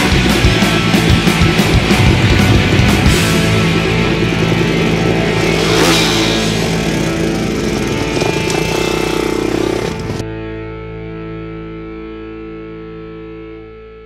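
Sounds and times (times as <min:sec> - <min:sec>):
pit bike engine running: 0:00.0 - 0:10.3
distorted rock music: 0:00.0 - 0:14.0.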